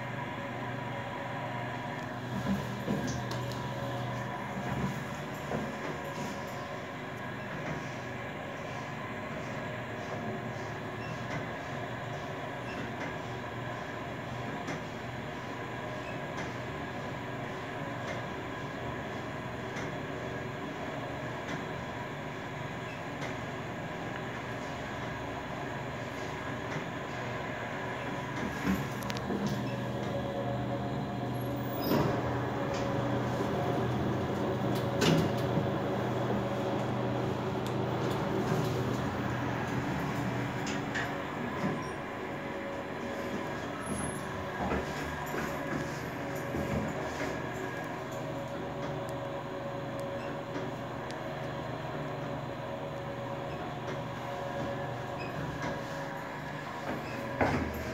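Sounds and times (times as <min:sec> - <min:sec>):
elevator car rumbling: 0:00.0 - 0:57.9
sliding doors opening: 0:25.9 - 0:51.0, 0:53.2 - 0:57.9
elevator door clunk: 0:31.4 - 0:36.3, 0:54.6 - 0:57.9.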